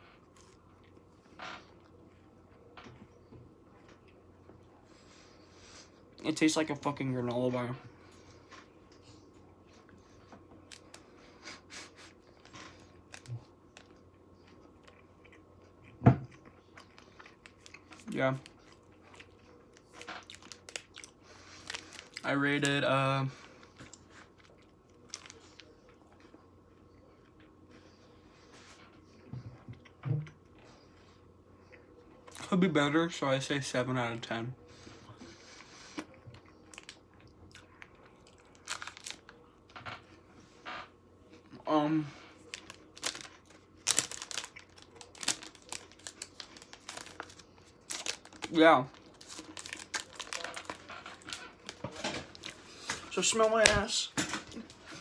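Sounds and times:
chewing granola bar: 12.1s - 22.7s, 42.4s - 52.6s.

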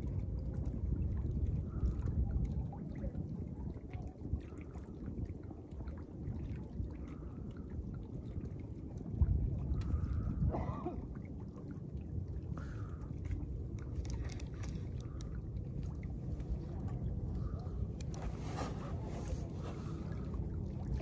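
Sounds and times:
waves lapping against boat: 0.0s - 21.0s
wind buffeting microphone: 0.0s - 21.0s.

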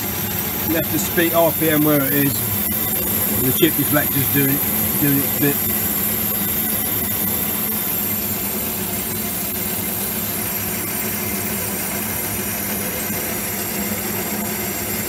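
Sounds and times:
lathe running: 0.0s - 10.9s.

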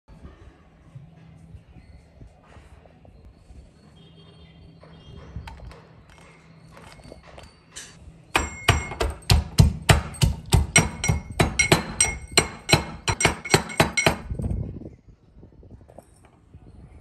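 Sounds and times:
pestle knocking in metal mortar: 8.3s - 14.4s.

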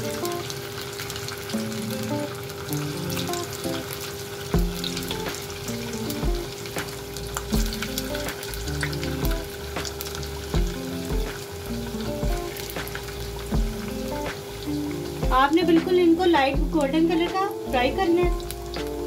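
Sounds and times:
food deep-frying in oil: 0.0s - 19.0s
low beat: 4.6s - 17.4s, 18.2s - 19.0s
background music: 4.6s - 19.0s.

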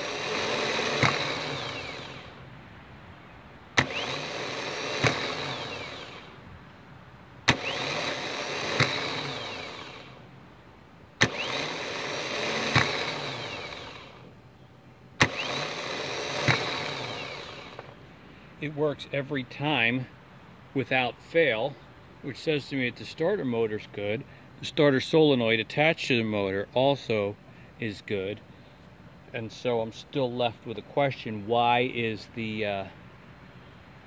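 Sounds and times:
starter motor spinning: 0.0s - 2.4s, 3.7s - 6.4s, 7.4s - 10.2s, 11.2s - 14.4s, 15.2s - 18.0s.

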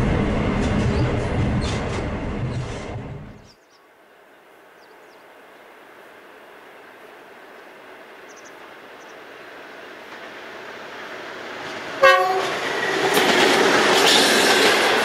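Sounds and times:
passenger train running: 0.0s - 3.6s, 4.2s - 15.0s
train rumble and hiss: 0.0s - 15.0s.

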